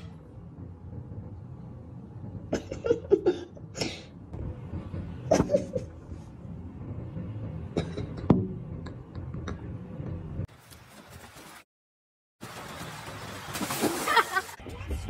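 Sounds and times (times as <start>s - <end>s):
low background rumble: 0.0s - 10.5s.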